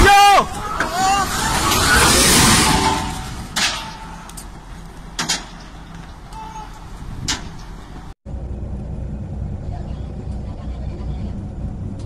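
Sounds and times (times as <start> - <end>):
heavy vehicle engine running: 4.2 - 12.0.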